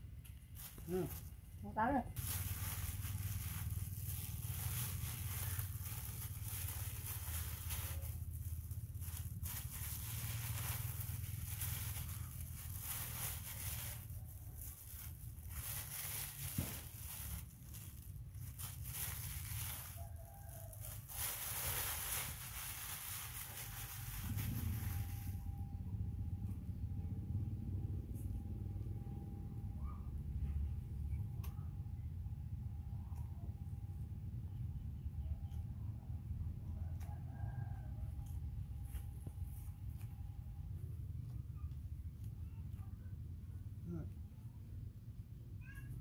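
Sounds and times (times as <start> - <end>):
plastic bag crinkling: 0.4 - 1.6, 2.2 - 25.5
low rumble: 0.6 - 20.1, 21.2 - 36.8.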